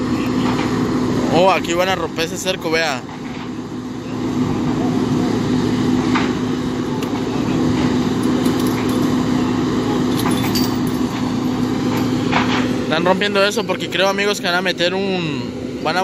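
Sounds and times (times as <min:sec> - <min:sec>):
diesel engine humming: 0:00.0 - 0:16.0
metallic clinks: 0:10.1 - 0:12.1.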